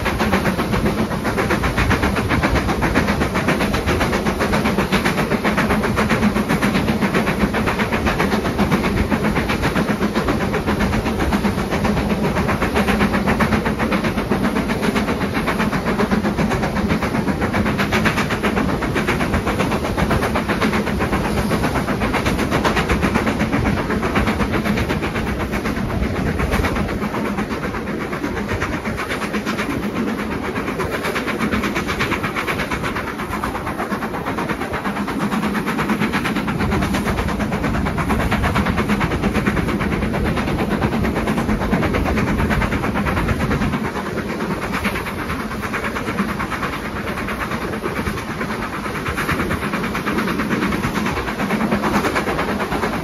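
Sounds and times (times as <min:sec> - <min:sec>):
steam locomotive exhaust beats: 0:00.0 - 0:53.0
wheels clattering on rails: 0:00.0 - 0:53.0.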